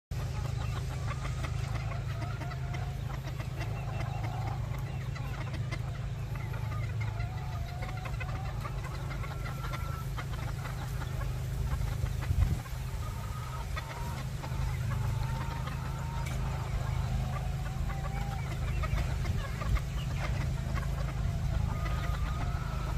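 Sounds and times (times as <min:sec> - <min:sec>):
chickens clucking and calling: 0:00.1 - 0:22.9
steady low rumble: 0:00.1 - 0:22.9.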